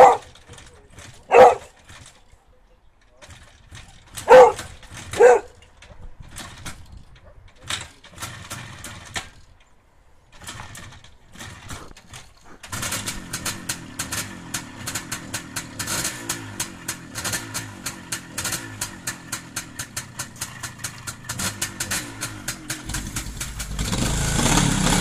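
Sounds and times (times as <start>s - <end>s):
dog barking: 0.0s - 0.3s, 1.3s - 1.7s, 4.2s - 5.6s.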